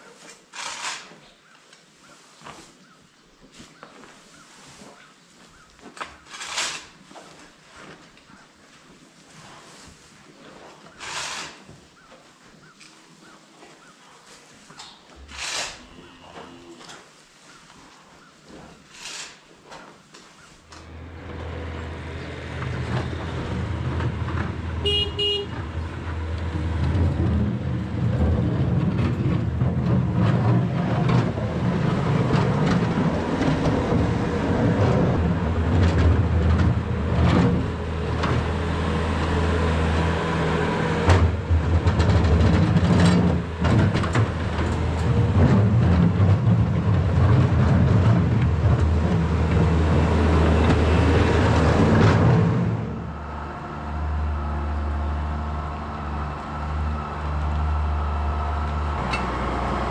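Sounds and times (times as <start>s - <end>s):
knocks and clanks: 20.7s - 53.0s
diesel engine running: 20.8s - 59.9s.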